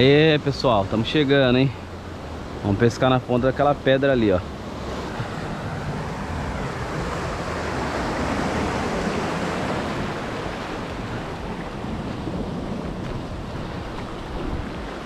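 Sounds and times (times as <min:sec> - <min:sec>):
ocean surf washing through rocks: 0:00.0 - 0:15.0
wind on microphone: 0:04.5 - 0:15.0.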